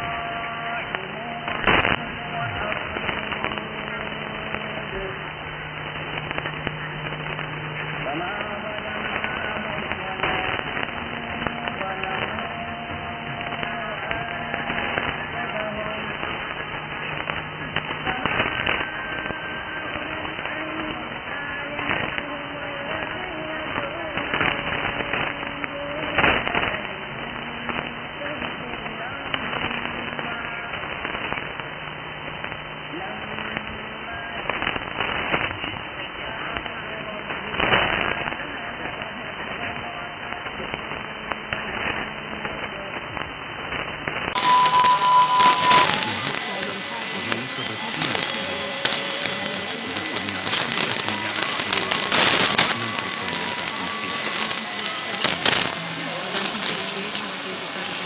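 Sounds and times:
faint radio speech: 0.0s - 31.7s, 32.3s - 58.0s
crackling static crashes: 0.0s - 58.0s
radio static hiss: 0.0s - 58.0s
faint steady whistle: 44.4s - 47.0s.

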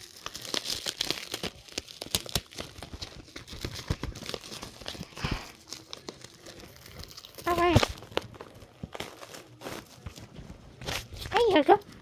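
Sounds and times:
plastic shrink wrap crinkling and tearing: 0.0s - 12.0s.

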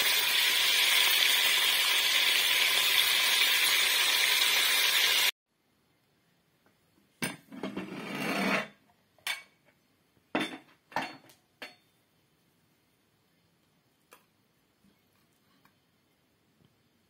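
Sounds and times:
dishes knocking and clinking: 7.2s - 7.9s, 9.2s - 11.9s
dishes scraping: 7.2s - 9.6s.

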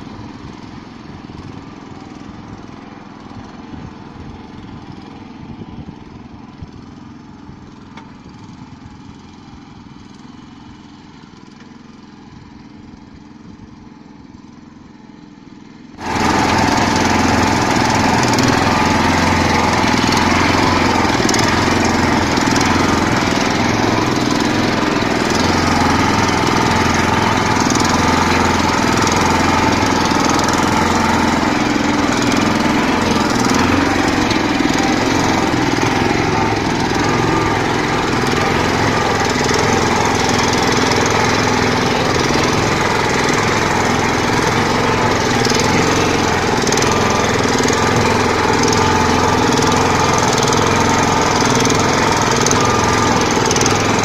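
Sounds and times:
small tractor engine running: 0.0s - 54.0s.

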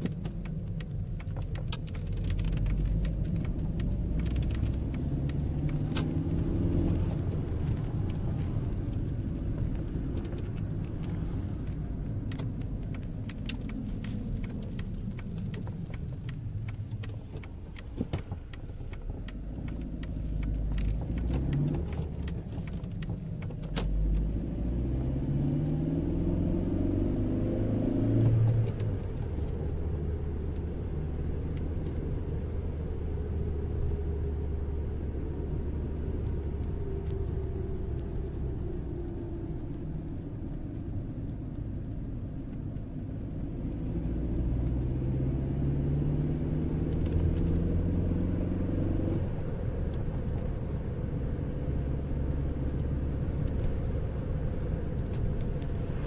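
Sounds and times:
light clicks and rattles: 0.0s - 24.4s
car engine and road rumble: 0.0s - 56.0s.

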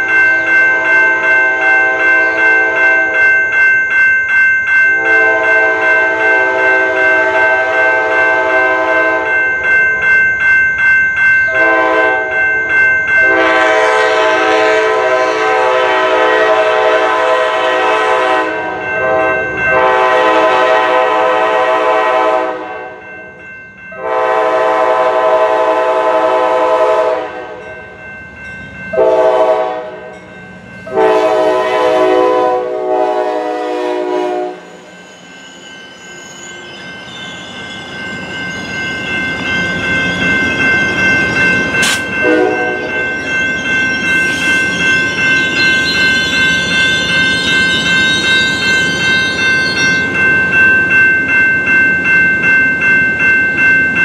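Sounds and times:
locomotive air horn blasts: 0.7s - 3.2s, 5.0s - 9.3s, 11.5s - 12.3s, 13.2s - 22.8s, 24.0s - 27.6s, 29.0s - 30.1s, 30.9s - 34.7s, 41.8s - 42.9s
bell ringing faintly: 34.6s - 54.0s.

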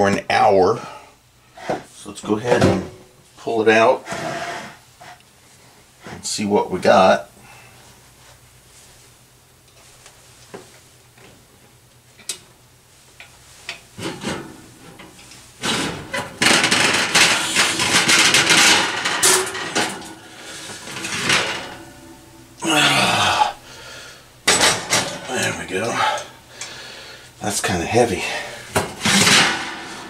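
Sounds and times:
pot scraping against metal rack: 4.0s - 5.2s, 14.0s - 22.2s, 28.2s - 30.0s
oven rack sliding out: 15.6s - 22.1s, 28.8s - 30.0s.

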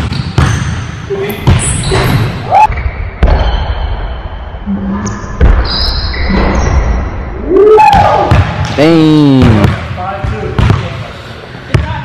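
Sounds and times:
sneaker squeaks: 0.0s - 2.4s, 5.0s - 7.0s
basketball bouncing on hardwood: 10.6s - 10.8s.

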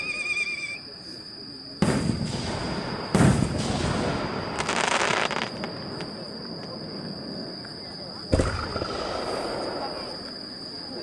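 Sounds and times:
firework crackling: 1.8s - 6.3s, 8.4s - 10.2s
firework shells booming: 1.8s - 7.0s, 8.3s - 10.2s.

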